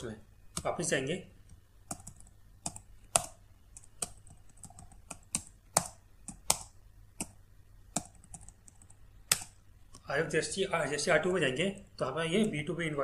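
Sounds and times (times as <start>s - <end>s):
keyboard keystrokes: 1.4s - 10.0s.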